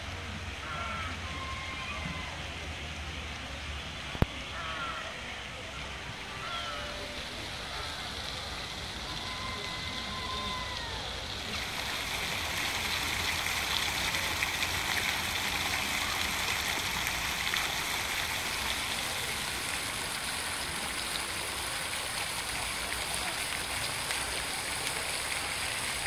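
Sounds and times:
fountain water splashing into pool: 0.0 - 26.0.

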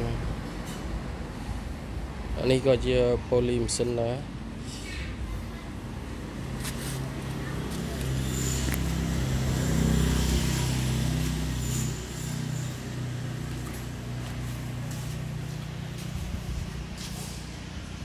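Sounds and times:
engine running: 5.5 - 18.0.

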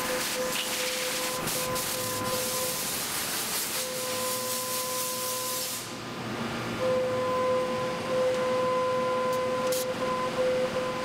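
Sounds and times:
hiss of cutting and coolant spray: 0.2 - 6.0.

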